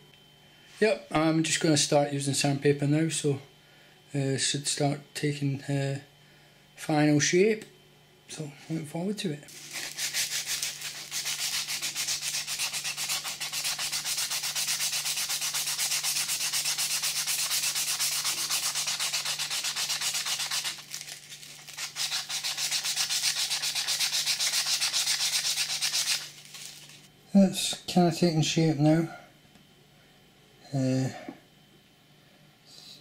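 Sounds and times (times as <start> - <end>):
sandpaper rubbing wood: 9.5 - 27.0.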